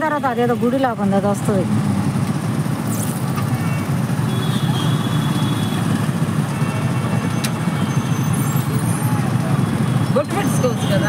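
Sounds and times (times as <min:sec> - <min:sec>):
vehicle engine low rumble: 0:00.5 - 0:04.3.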